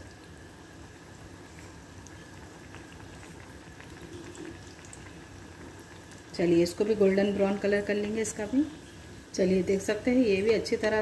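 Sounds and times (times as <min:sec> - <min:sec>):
oil bubbling while deep-frying: 0:00.0 - 0:11.0
faint crackles: 0:00.9 - 0:09.4.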